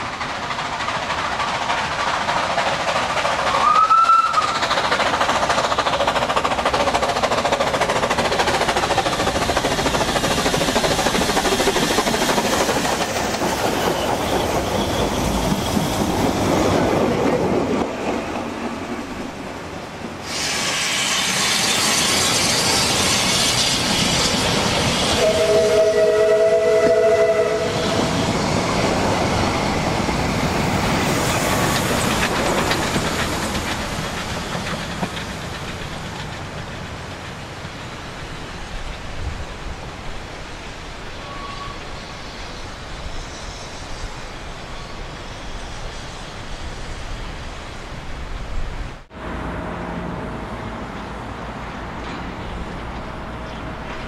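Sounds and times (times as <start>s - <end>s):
steam locomotive exhaust: 0.0s - 17.0s, 20.0s - 39.3s
steam hiss: 0.0s - 49.1s
rail noise: 0.0s - 54.0s
steam whistle: 3.6s - 4.6s, 25.1s - 28.2s, 41.2s - 42.0s.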